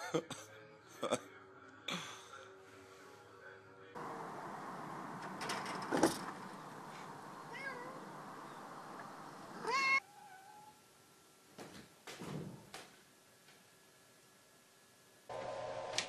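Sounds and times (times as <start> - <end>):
soft knocks: 4.0 - 9.6
cat meowing: 7.4 - 8.2, 9.5 - 10.8.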